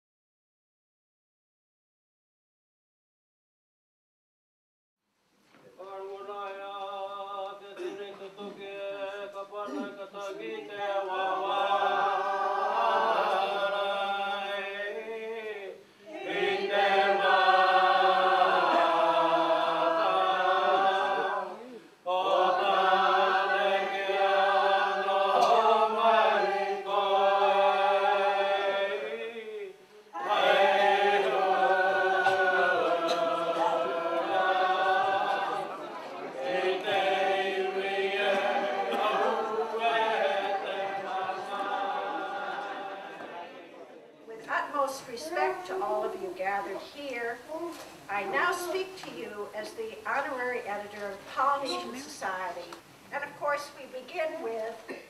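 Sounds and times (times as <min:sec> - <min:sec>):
group singing unaccompanied: 0:05.8 - 0:46.4.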